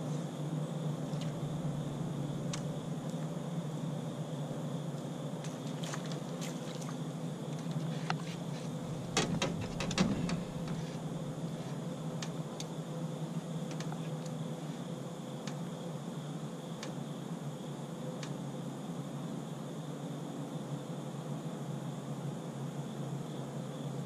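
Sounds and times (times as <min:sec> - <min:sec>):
knocks and clicks on boat deck: 0:07.6 - 0:12.7, 0:13.6 - 0:14.4.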